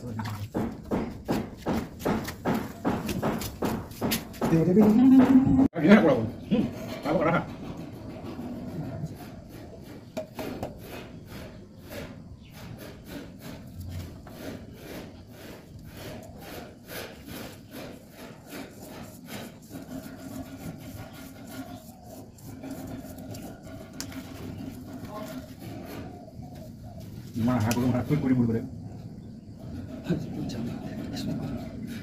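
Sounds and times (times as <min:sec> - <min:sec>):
rubbing strokes on plastic pipe: 0:06.5 - 0:28.4.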